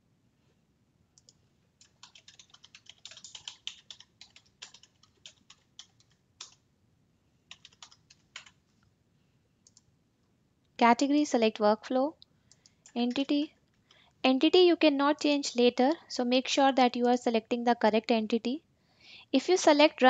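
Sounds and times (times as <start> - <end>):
typing on keyboard: 1.2 - 6.6, 7.5 - 8.6, 12.5 - 13.4.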